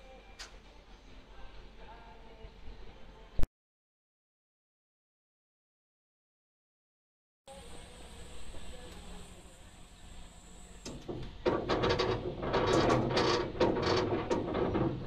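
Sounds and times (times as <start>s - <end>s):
train wheels clattering over rail joints: 10.9s - 15.0s.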